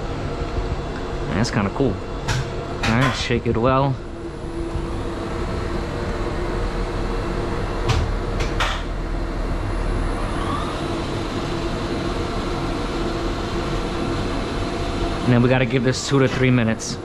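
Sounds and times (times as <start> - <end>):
elevator machinery drone: 0.0 - 17.0
faint rising whine: 3.4 - 17.0.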